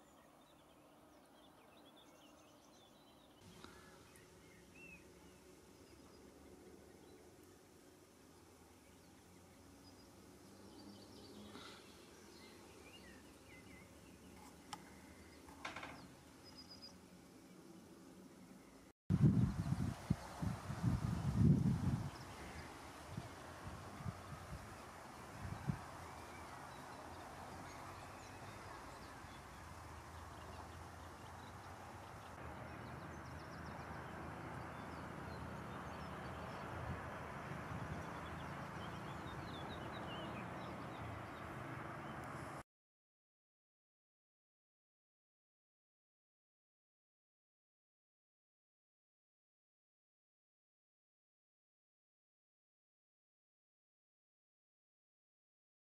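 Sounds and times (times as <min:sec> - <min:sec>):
small birds chirping: 0:00.0 - 0:42.6
wind buffeting microphone: 0:19.1 - 0:26.2, 0:35.7 - 0:40.3
wind rustling through reeds: 0:19.1 - 0:42.6.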